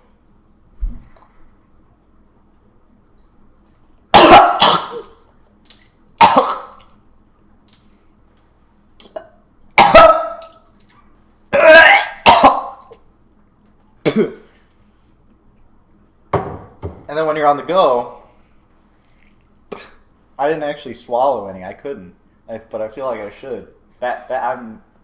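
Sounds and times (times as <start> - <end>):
man gagging and retching: 4.1 - 5.2, 6.2 - 6.9, 9.0 - 10.6, 11.5 - 13.0, 19.7 - 20.0.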